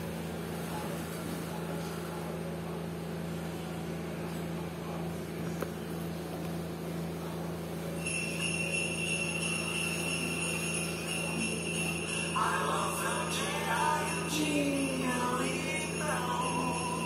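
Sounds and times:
electric fan humming and whirring: 0.0s - 17.0s.

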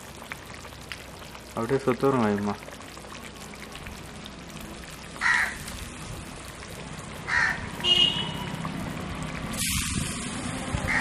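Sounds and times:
curry bubbling in a pot: 0.0s - 11.0s
crow cawing: 5.2s - 5.6s, 7.3s - 7.7s.

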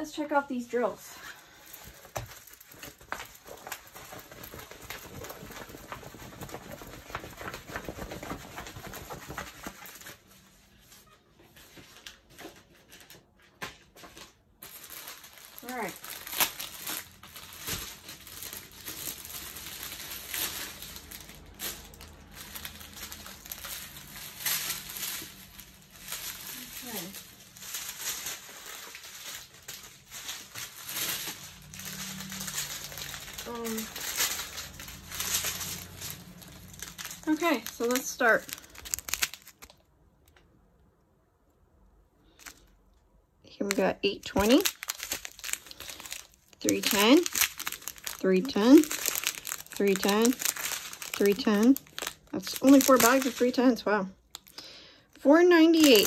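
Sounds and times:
plastic bags rustling: 0.1s - 39.9s, 42.2s - 42.9s, 43.6s - 56.0s.

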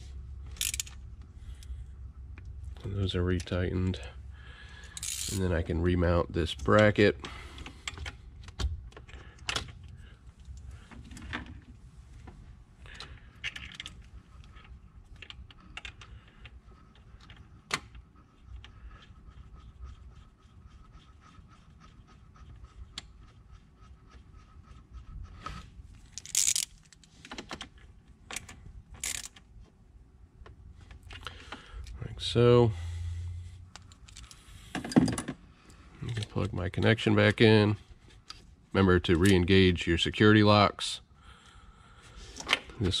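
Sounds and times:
hand ratchet clicking: 0.6s - 1.0s, 4.9s - 5.4s, 26.2s - 26.9s, 29.0s - 29.4s.

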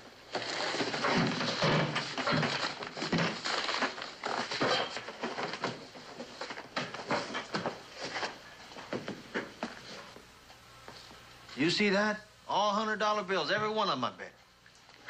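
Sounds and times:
footsteps on store floor: 0.0s - 11.6s.

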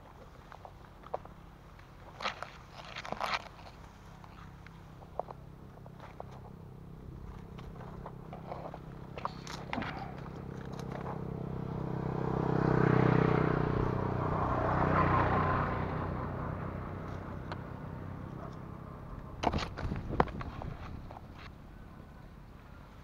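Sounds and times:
sharp clicks and rustles: 0.2s - 11.2s, 18.3s - 21.6s
vehicle engine passing by: 5.9s - 23.0s.

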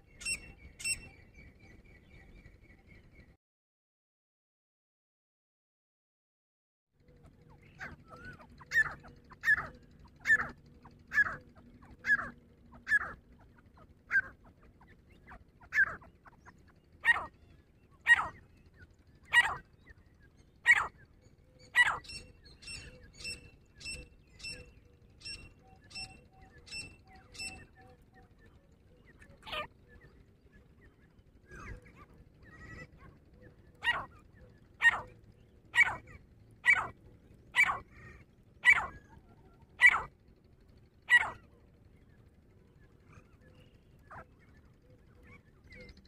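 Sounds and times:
bird calling ringing notes: 0.1s - 2.2s, 7.1s - 28.3s, 28.9s - 42.1s.

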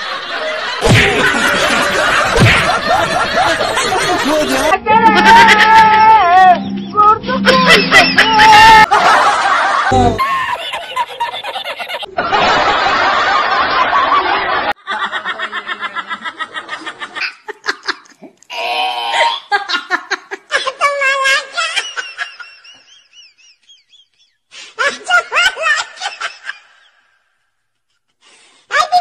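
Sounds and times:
person laughing: 0.8s - 5.8s, 7.3s - 12.4s.

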